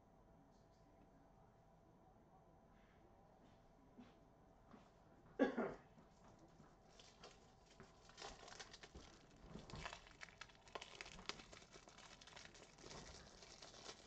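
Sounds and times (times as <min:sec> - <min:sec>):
plastic crinkling: 0:06.9 - 0:14.0.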